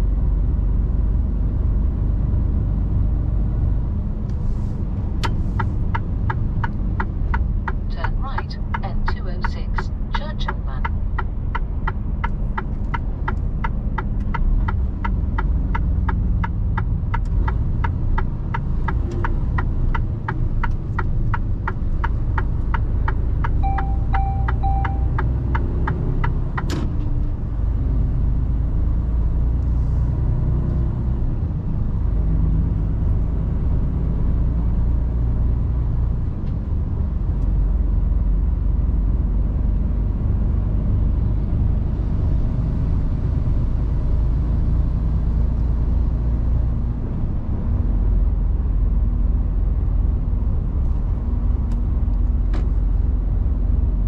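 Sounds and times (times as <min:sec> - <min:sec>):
truck engine and road rumble: 0:00.0 - 0:54.0
turn signal ticking: 0:05.1 - 0:27.9
short electronic beeps: 0:23.6 - 0:25.4.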